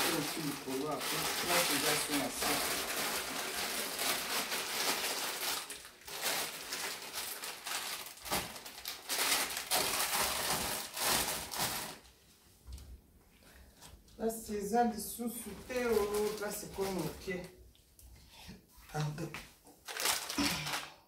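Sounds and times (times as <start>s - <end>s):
plastic packaging rustling: 0.0s - 12.2s, 15.3s - 17.5s, 19.8s - 21.0s.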